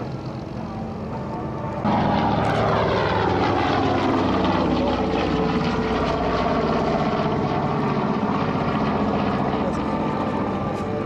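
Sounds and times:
propeller aircraft engines droning: 0.0 - 11.0.

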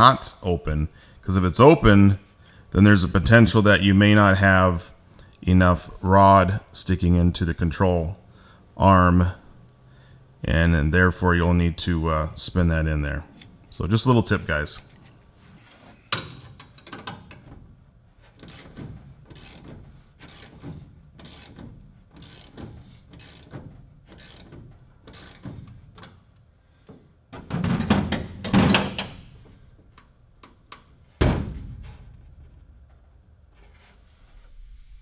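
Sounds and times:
ratchet wrench clicking: 18.4 - 20.6, 21.2 - 21.6, 22.2 - 23.5, 24.1 - 25.5
rattling and knocking: 26.9 - 33.8.

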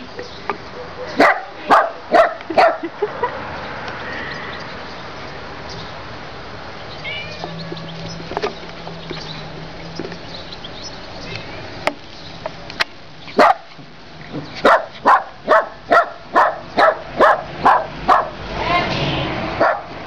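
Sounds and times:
small dog barking: 1.0 - 2.8, 13.4 - 13.7, 14.6 - 18.4, 19.6 - 19.9.

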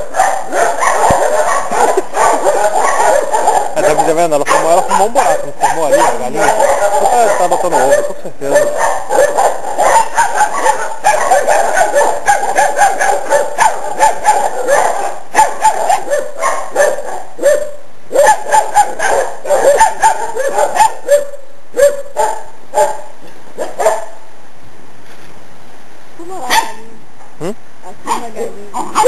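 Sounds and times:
puppies barking and yipping: 0.0 - 24.2, 28.0 - 29.0.

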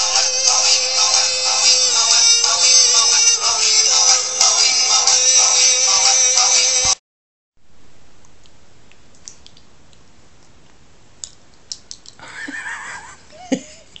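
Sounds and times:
faint room hiss: 7.6 - 14.0.

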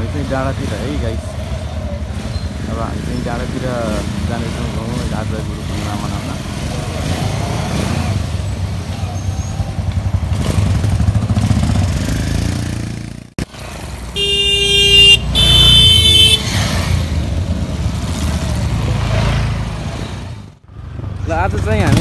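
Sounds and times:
motorcycle engines running: 0.0 - 22.0
horn blasts: 14.2 - 16.6.

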